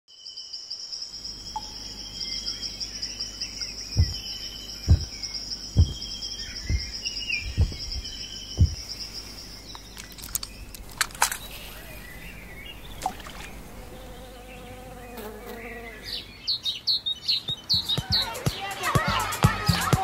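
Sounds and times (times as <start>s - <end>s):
crickets chirring: 0.1s - 17.7s
faint bird chirps: 0.1s - 18.8s
deep thumps: 3.9s - 9.2s.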